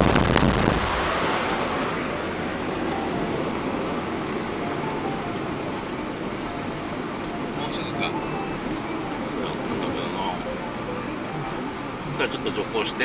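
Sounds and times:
wind buffeting: 0.0s - 7.5s
car road and wind noise: 0.0s - 13.0s.

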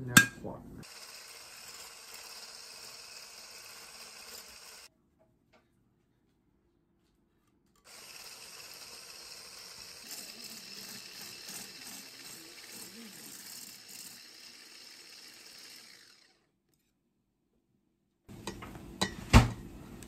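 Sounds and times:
hand blender whisking in bowl: 0.8s - 4.9s, 7.9s - 16.4s.

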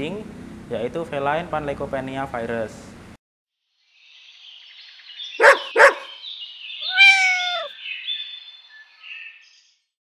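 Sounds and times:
dog barks: 5.4s - 6.2s
cat meow: 6.8s - 7.7s.

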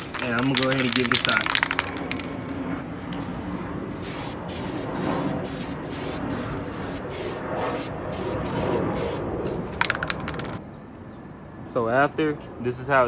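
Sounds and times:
aerosol spray hissing: 3.2s - 9.4s.

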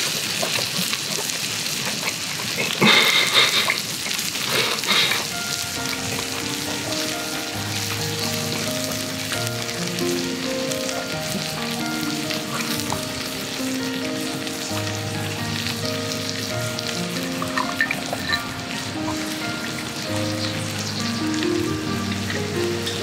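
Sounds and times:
steady sizzling hiss: 0.0s - 23.0s
slow held music notes: 4.8s - 23.0s.

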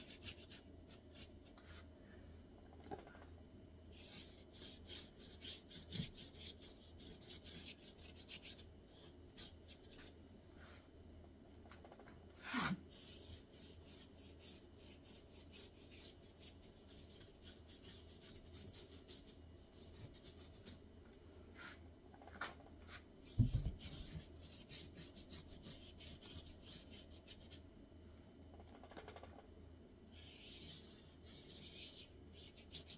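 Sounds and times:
paintbrush scratching on paper: 3.9s - 10.7s, 12.4s - 20.8s, 22.9s - 27.6s, 30.1s - 32.9s.

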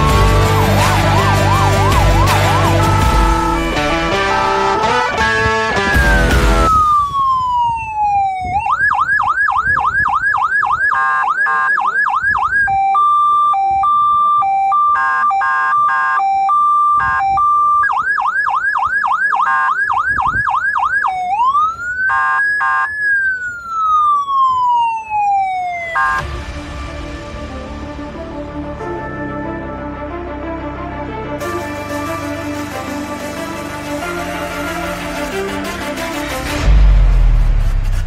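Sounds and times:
electronic siren: 0.0s - 26.3s.

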